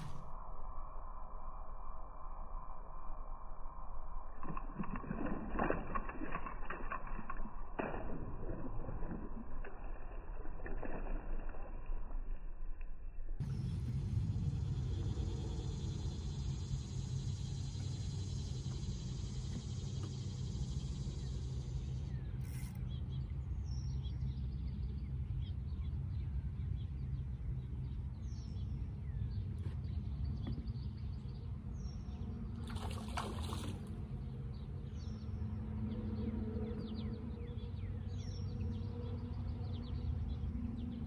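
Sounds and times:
steady low rumble: 0:00.0 - 0:41.0
insect buzz: 0:13.4 - 0:22.9.

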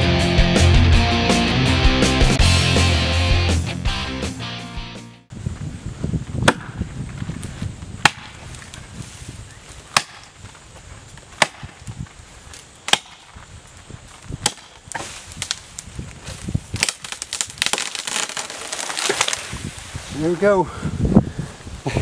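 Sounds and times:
axe chopping into tree trunk: 0:06.4 - 0:06.8, 0:08.0 - 0:08.4, 0:09.9 - 0:10.3, 0:11.4 - 0:11.8, 0:12.8 - 0:13.4, 0:14.4 - 0:15.6.

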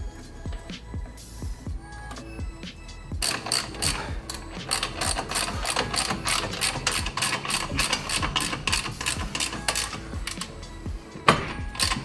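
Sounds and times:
ratchet clicking rapidly: 0:03.2 - 0:12.0.

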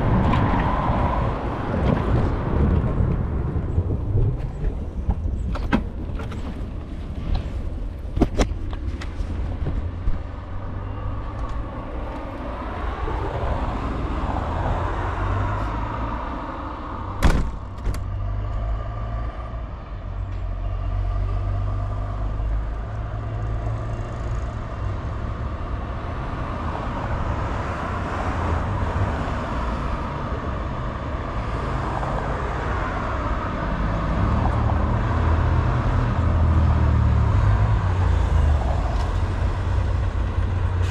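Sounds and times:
wind buffeting microphone: 0:00.0 - 0:07.8
road noise: 0:00.0 - 0:40.9.

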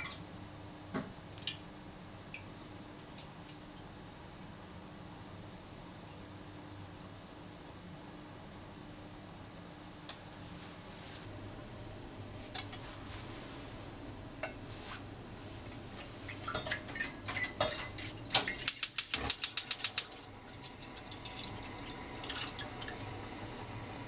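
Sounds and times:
gas hob igniter clicking: 0:18.7 - 0:20.1
juice pouring into a saucepan: 0:19.6 - 0:23.8.

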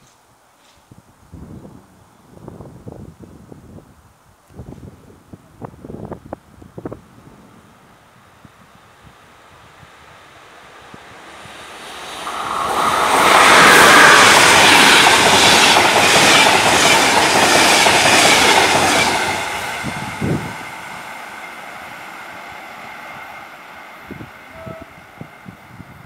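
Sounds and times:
train passing at speed: 0:05.7 - 0:26.0.

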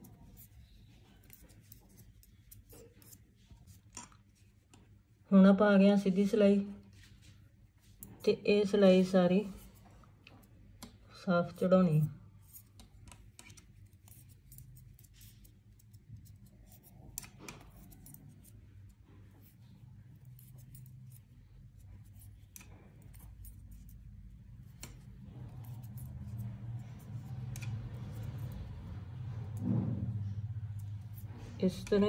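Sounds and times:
yarn rubbing softly: 0:06.0 - 0:10.5
knitting needles clicking: 0:24.6 - 0:28.7.

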